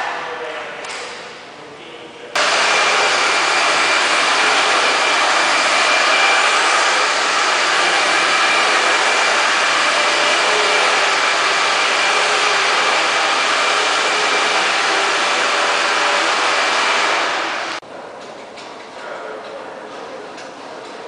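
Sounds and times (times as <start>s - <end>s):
motor-driven blower whooshing: 2.4s - 17.8s.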